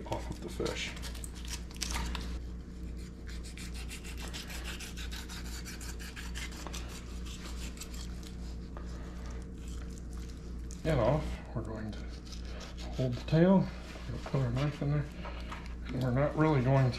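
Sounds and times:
knife rasping over fish bones: 0:03.0 - 0:08.6.

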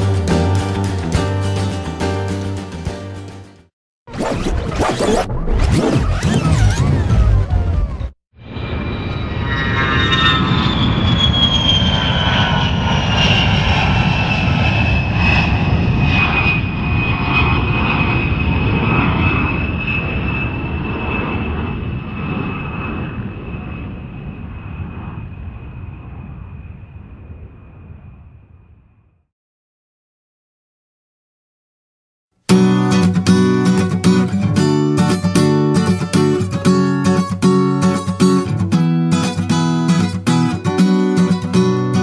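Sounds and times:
jet engines rumbling in cabin: 0:06.1 - 0:28.6.

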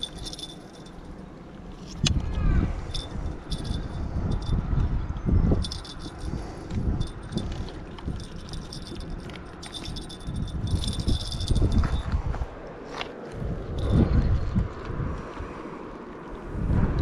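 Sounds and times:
metal pliers jingling and clicking: 0:00.0 - 0:01.1, 0:02.9 - 0:04.6, 0:05.6 - 0:12.2
wind rumbling on microphone: 0:00.0 - 0:17.0.

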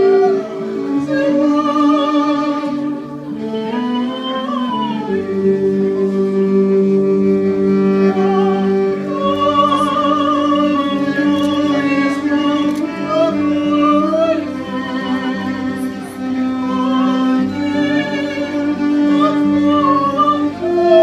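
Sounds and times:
women singing: 0:00.0 - 0:03.5, 0:08.1 - 0:21.0
violin playing slow melody: 0:00.0 - 0:21.0.

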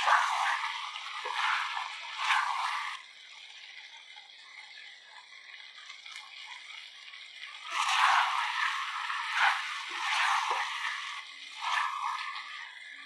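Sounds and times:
spatula stirring wet food: 0:00.0 - 0:03.0, 0:07.7 - 0:12.4.

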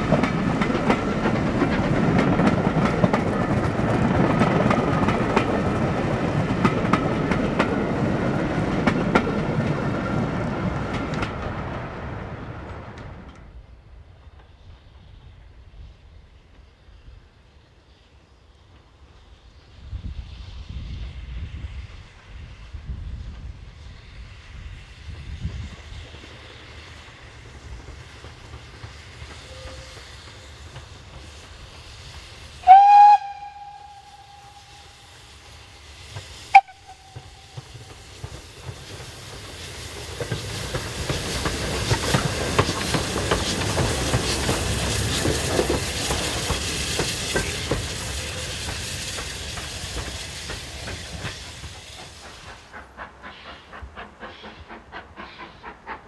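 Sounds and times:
wheels on rail joints: 0:00.0 - 0:15.6, 0:18.6 - 0:56.0
steam locomotive exhaust: 0:00.0 - 0:56.0
steam locomotive whistle: 0:29.4 - 0:30.4, 0:32.6 - 0:35.2, 0:36.5 - 0:38.0.

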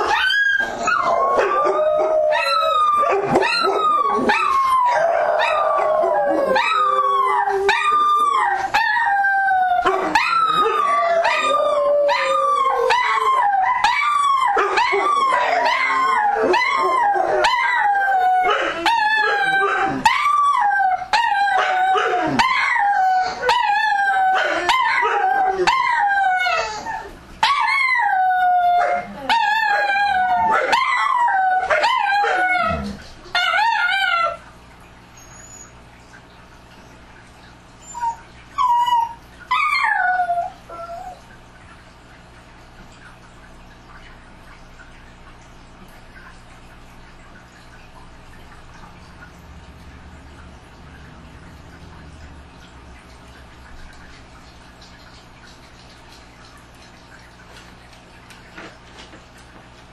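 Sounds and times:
dogs howling and yelping: 0:00.0 - 0:34.5, 0:35.2 - 0:35.8, 0:37.7 - 0:41.5.

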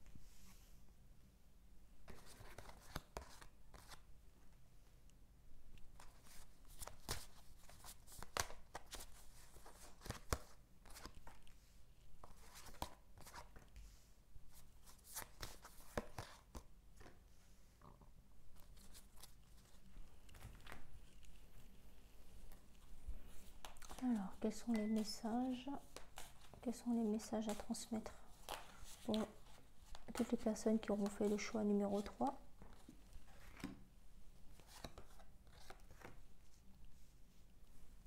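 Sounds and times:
cards being shuffled: 0:02.1 - 0:04.0, 0:05.9 - 0:11.6, 0:12.2 - 0:13.8, 0:22.4 - 0:33.8, 0:34.6 - 0:36.2.

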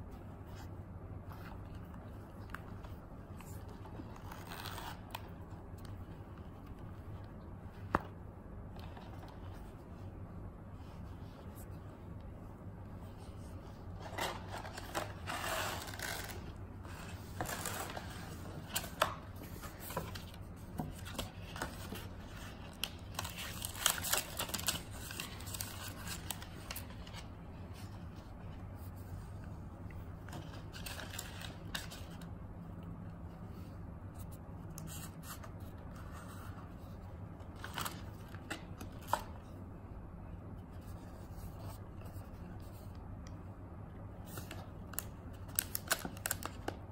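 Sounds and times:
packaging rustling: 0:14.0 - 0:27.3.

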